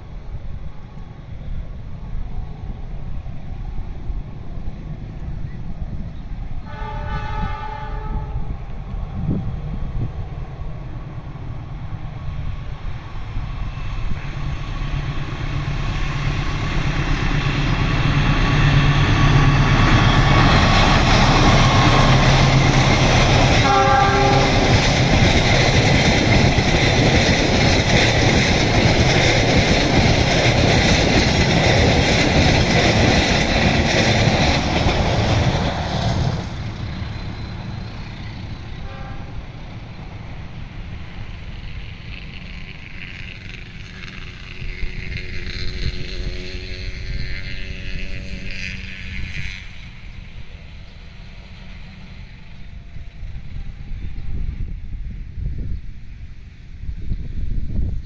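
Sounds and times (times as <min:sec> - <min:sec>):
diesel locomotive engine: 0:00.0 - 0:58.0
train horn blast: 0:06.6 - 0:08.8, 0:20.2 - 0:24.9, 0:38.7 - 0:39.6, 0:42.6 - 0:49.9
train wheels clattering on rails: 0:12.9 - 0:39.1, 0:40.0 - 0:54.4.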